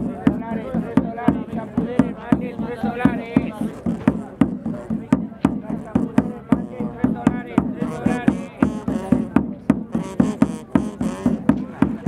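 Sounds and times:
drum beating steadily: 0:00.0 - 0:12.0
person's voice: 0:00.1 - 0:09.4.

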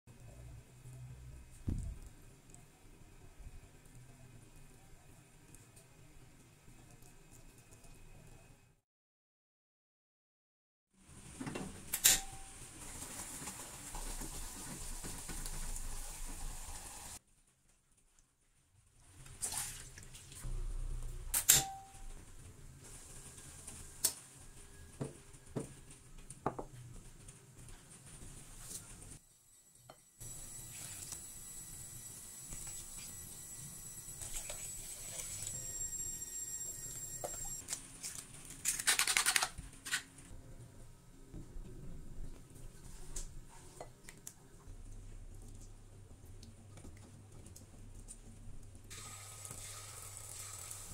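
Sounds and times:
coconut milk simmering hiss: 0:12.6 - 0:17.2, 0:22.7 - 0:37.5, 0:48.8 - 0:50.9.

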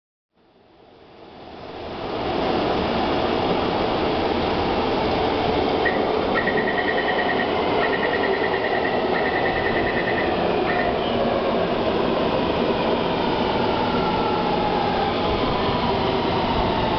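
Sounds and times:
station noise: 0:05.0 - 0:16.9.

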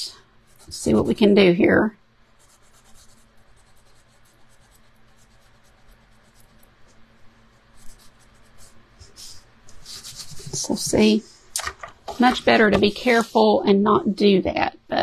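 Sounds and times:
wipe rubbing on wooden frame: 0:07.6 - 0:11.0.

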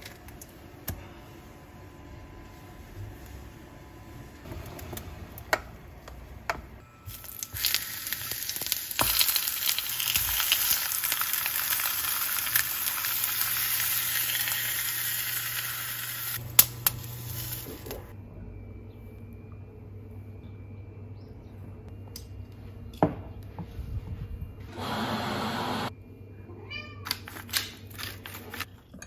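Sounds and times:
food sizzling in frying pan: 0:07.1 - 0:16.4.

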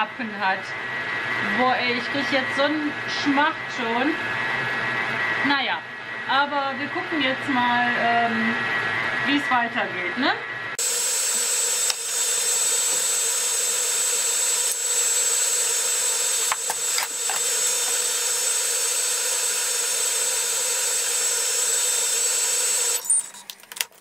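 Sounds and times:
food processor motor whining: 0:10.8 - 0:24.0.

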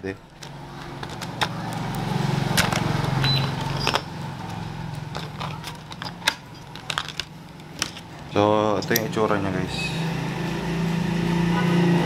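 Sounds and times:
plastic packaging crackling: 0:00.2 - 0:08.2.

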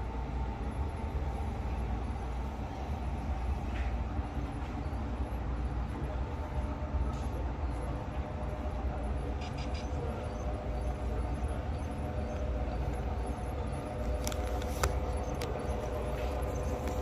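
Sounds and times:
model train humming: 0:00.0 - 0:17.0
wheels clicking on track: 0:08.1 - 0:17.0.

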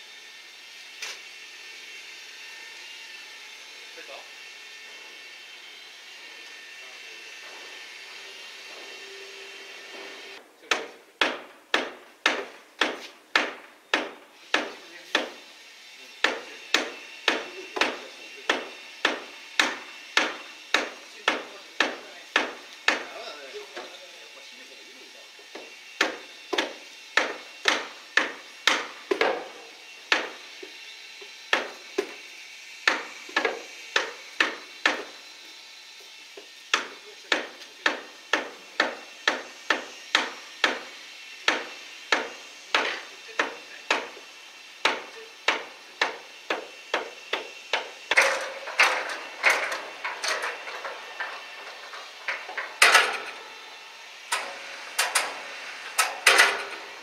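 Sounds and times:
hammer blows: 0:44.8 - 0:57.0.

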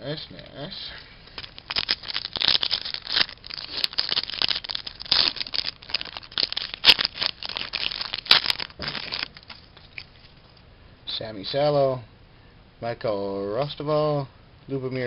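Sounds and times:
plastic wrapper crinkling: 0:01.3 - 0:10.6.

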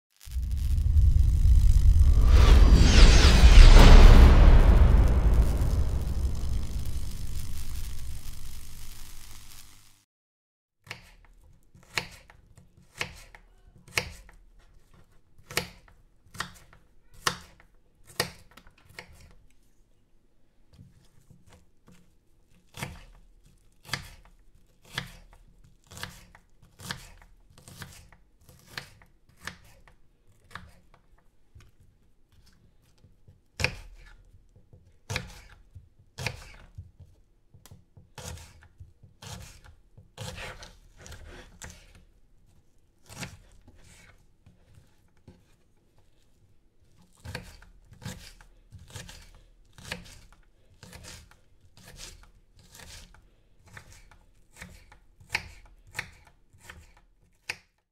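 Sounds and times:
knife chopping onion on wood: 0:10.8 - 0:14.4, 0:33.6 - 0:42.0, 0:49.8 - 0:57.7.

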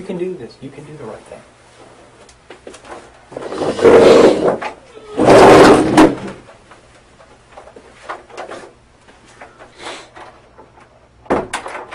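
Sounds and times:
door handling clicks and rustles: 0:09.4 - 0:11.9.

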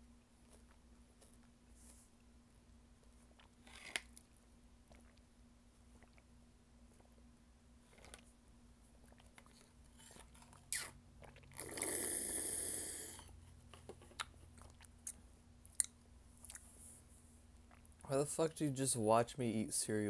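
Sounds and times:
faint chewing: 0:00.3 - 0:02.3, 0:03.0 - 0:18.1
slurping from a bowl: 0:10.0 - 0:13.4.

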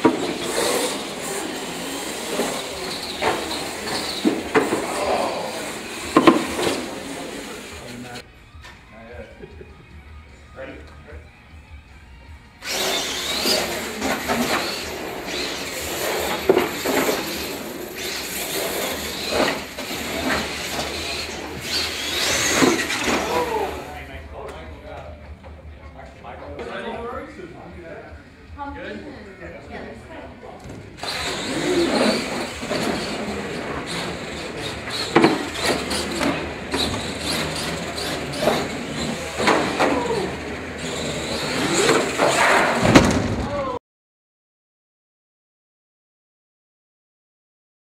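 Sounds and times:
electric motors whining: 0:00.0 - 0:08.9, 0:09.6 - 0:25.7, 0:29.9 - 0:43.8
trucks knocking and clattering: 0:31.0 - 0:43.6
sharp knock: 0:42.8 - 0:43.5.

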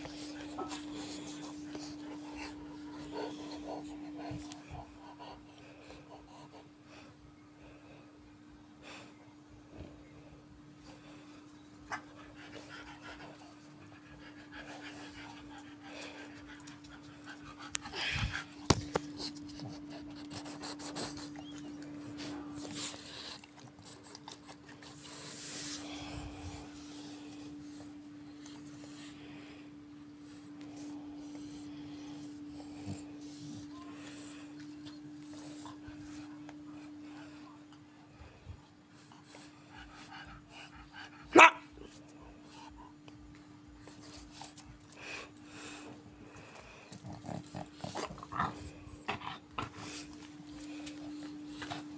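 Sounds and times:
faint hum: 0:00.0 - 0:51.9
dog barking: 0:41.3 - 0:41.6.

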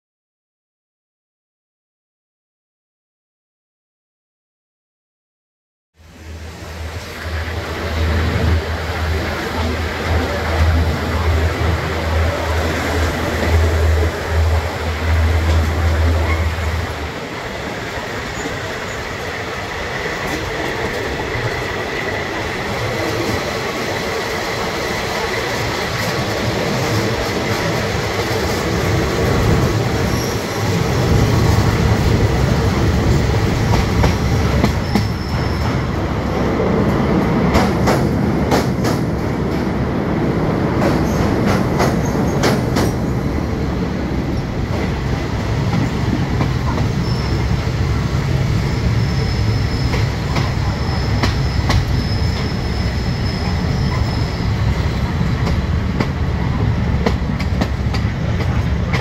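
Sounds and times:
train running rumble: 0:06.0 - 0:59.0
train wheels clattering on rails: 0:08.4 - 0:36.0, 0:36.8 - 0:39.8, 0:40.6 - 0:43.5, 0:44.3 - 0:47.7, 0:48.3 - 0:59.0
high wheel squeal: 0:30.0 - 0:30.8, 0:34.8 - 0:35.9, 0:46.7 - 0:47.7, 0:48.6 - 0:55.0.

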